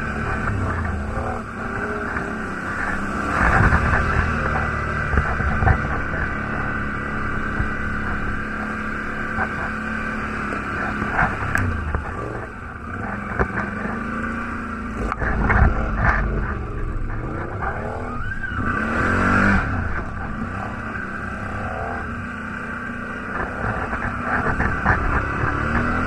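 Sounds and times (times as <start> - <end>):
sharp knocks of bouncing vehicle: 0.0 - 14.4
quad bike engine revving: 0.0 - 26.0.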